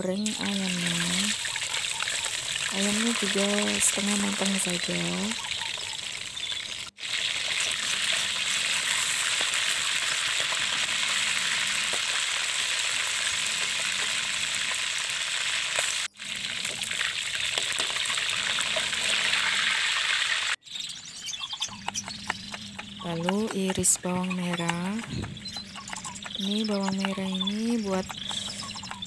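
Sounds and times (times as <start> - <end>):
chicken sizzling in oil: 0.2 - 20.6.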